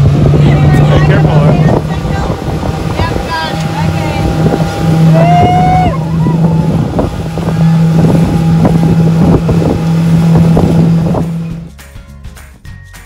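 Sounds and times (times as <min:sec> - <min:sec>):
wind on microphone: 0:00.0 - 0:11.7
motorboat engine running: 0:00.0 - 0:11.8
high-pitched shout: 0:05.1 - 0:06.8.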